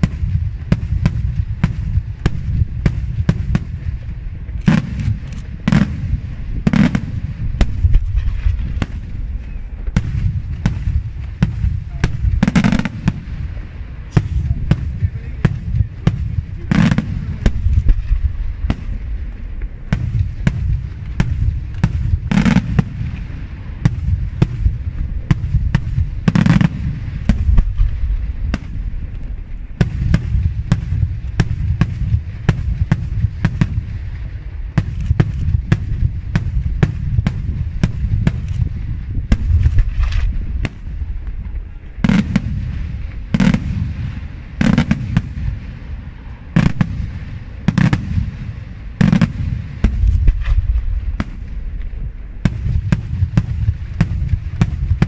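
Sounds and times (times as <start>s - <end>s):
fireworks bangs and cracks: 0.0s - 55.0s
heavy firework booms: 0.0s - 55.0s
low rumble: 0.0s - 55.0s.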